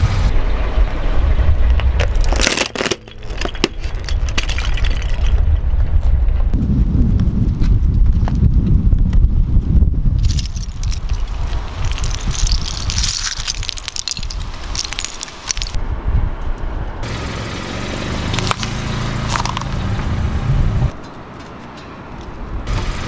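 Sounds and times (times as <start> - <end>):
plastic pieces clattering on asphalt: 2.0 - 5.6, 10.2 - 15.8, 18.4 - 19.8
car engine humming: 10.2 - 23.0.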